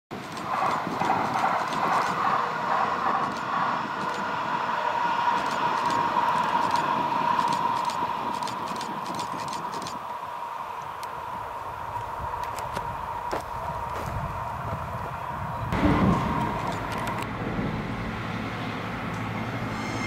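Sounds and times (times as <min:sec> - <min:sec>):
light clicks of tram: 0:00.1 - 0:04.4, 0:05.2 - 0:10.1, 0:10.8 - 0:11.2, 0:12.0 - 0:14.2, 0:14.9 - 0:17.4, 0:19.1 - 0:19.3
distant tram whine: 0:00.1 - 0:20.0.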